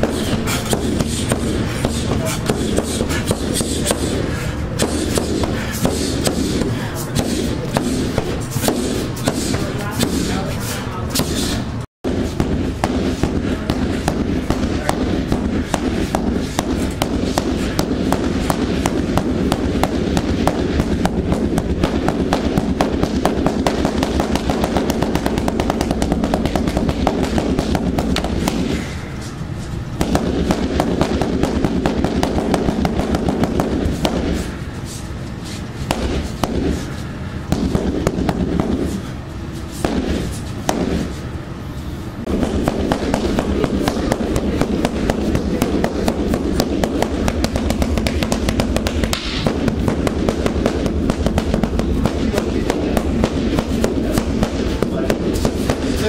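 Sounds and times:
punches on heavy bag: 0:12.1 - 0:29.0, 0:30.0 - 0:34.6, 0:35.8 - 0:36.9, 0:39.8 - 0:41.1, 0:42.3 - 0:56.0.

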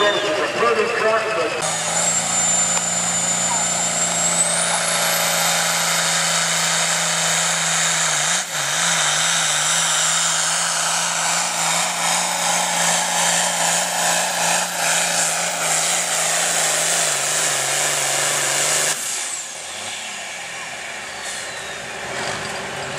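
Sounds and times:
high turbo whine: 0:00.0 - 0:22.9
tractor diesel engine at full load: 0:00.0 - 0:22.9.

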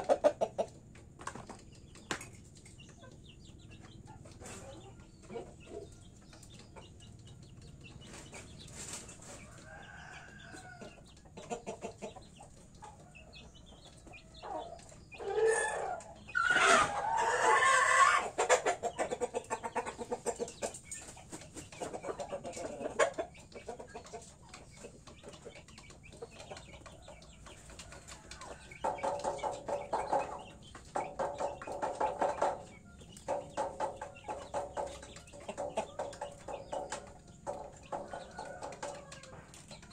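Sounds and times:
chickens squawking: 0:00.0 - 0:01.3, 0:02.8 - 0:07.1, 0:07.8 - 0:39.9
chickens clucking: 0:00.0 - 0:39.9.

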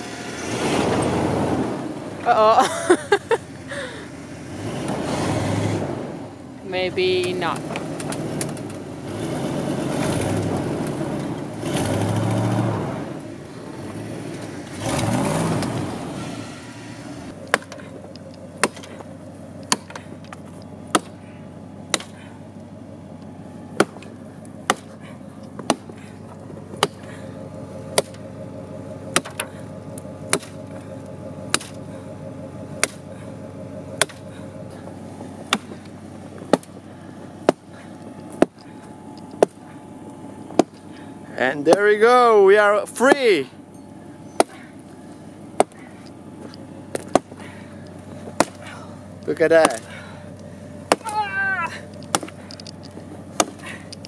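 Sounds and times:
engine idling: 0:00.0 - 0:54.0
truck engine revving: 0:00.0 - 0:54.0
axe chopping wooden log: 0:17.3 - 0:21.3, 0:21.9 - 0:22.4, 0:23.7 - 0:27.2, 0:27.9 - 0:28.2, 0:29.1 - 0:29.7, 0:30.3 - 0:30.8, 0:31.5 - 0:31.9, 0:32.8 - 0:33.2, 0:34.0 - 0:34.4, 0:35.4 - 0:38.7, 0:39.4 - 0:39.8, 0:40.5 - 0:40.9, 0:41.6 - 0:42.0, 0:44.4 - 0:44.8, 0:45.5 - 0:46.0, 0:46.9 - 0:47.4, 0:48.1 - 0:50.1, 0:50.8 - 0:52.5, 0:53.3 - 0:54.0.

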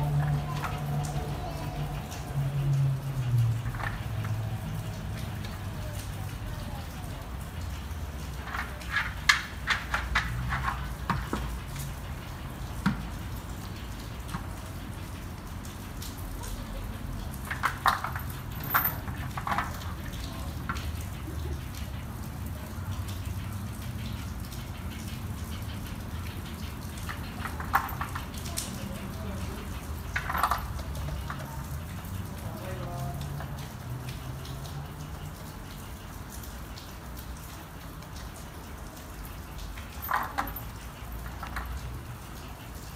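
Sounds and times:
clicks and knocks from food feeders: 0:08.3 - 0:11.8, 0:23.8 - 0:31.6, 0:40.0 - 0:42.1.

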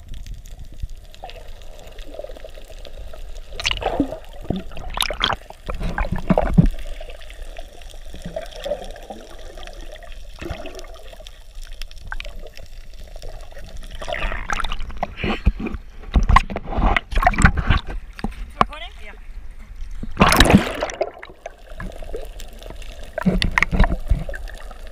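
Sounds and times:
seawater splashing against camera: 0:13.9 - 0:18.8.

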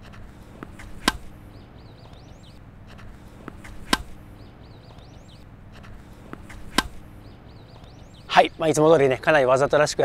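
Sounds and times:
birds chirping faintly: 0:00.0 - 0:10.0
racket striking tennis ball: 0:00.1 - 0:02.2, 0:02.9 - 0:04.4, 0:05.8 - 0:07.3
tennis ball bouncing on court: 0:00.5 - 0:01.4, 0:02.0 - 0:05.1, 0:05.8 - 0:07.1.

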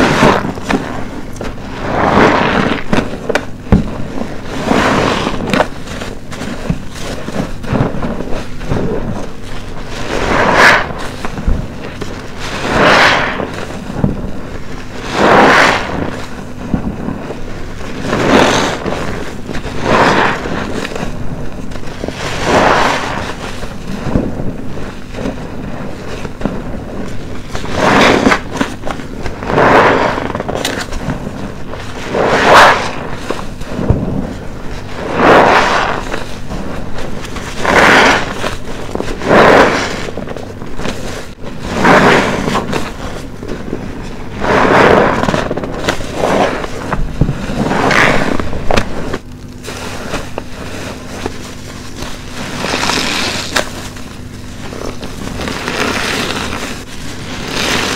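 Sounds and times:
soapy sponge squeezed by hand: 0:54.7 - 0:57.9.

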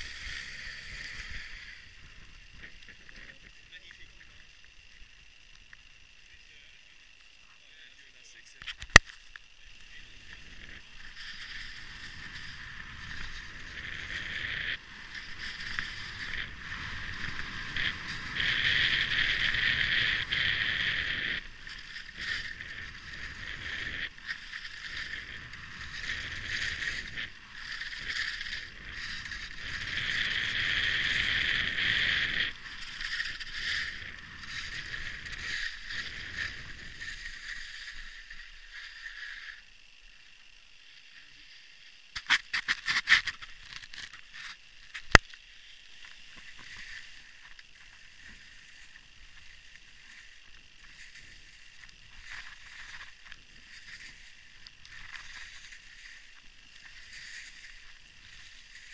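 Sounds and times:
skis scraping over snow: 0:00.0 - 0:04.4, 0:09.6 - 0:39.6, 0:41.2 - 0:58.9
wind rumbling on microphone: 0:00.0 - 0:06.1, 0:09.6 - 0:39.3.

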